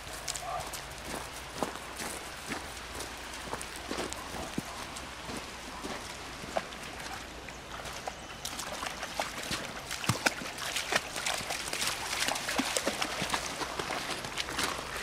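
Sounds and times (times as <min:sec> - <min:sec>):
river water running over stones: 0:00.0 - 0:15.0
dog splashing in water: 0:05.3 - 0:15.0.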